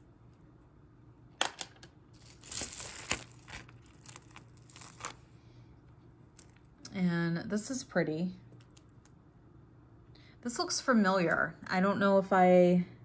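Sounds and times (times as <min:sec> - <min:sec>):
crinkly rustle: 0:02.2 - 0:05.3.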